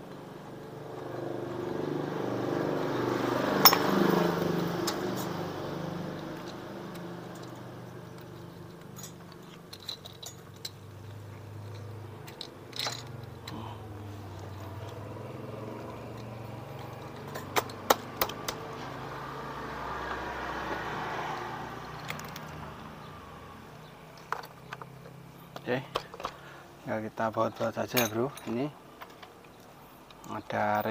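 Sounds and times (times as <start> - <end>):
metal parts and tools clinking: 3.5 - 4.2, 4.8 - 5.4, 6.0 - 18.9, 21.8 - 22.7, 24.1 - 26.5, 27.4 - 30.9.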